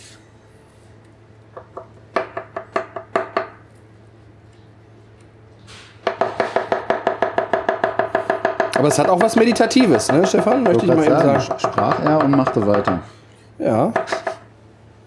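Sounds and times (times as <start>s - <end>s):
knife chopping on wooden board: 6.1s - 13.1s, 13.9s - 14.4s.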